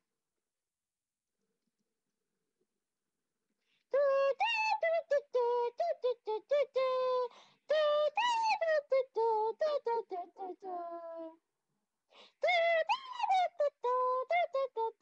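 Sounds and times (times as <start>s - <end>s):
woman singing: 3.9s - 11.4s, 12.4s - 15.0s.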